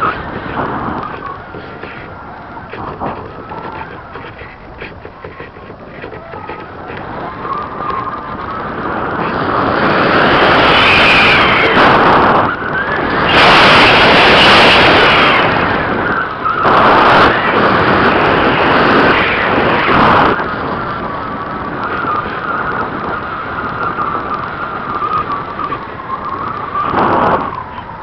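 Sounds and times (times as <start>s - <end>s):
air rushing past: 0.0s - 16.0s
high airflow whistle: 0.0s - 20.3s.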